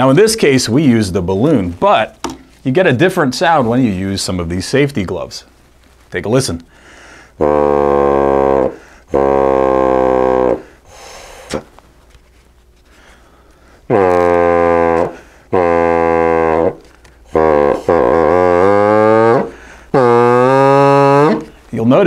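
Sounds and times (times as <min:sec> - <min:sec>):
kazoo buzzing honks: 0:07.1 - 0:11.7, 0:13.9 - 0:21.7.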